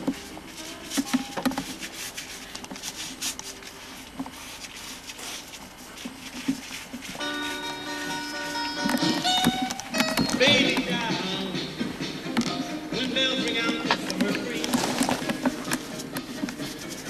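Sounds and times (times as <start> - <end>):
paintbrushes scrubbing on canvas: 0.4 - 8.7, 14.6 - 17.0.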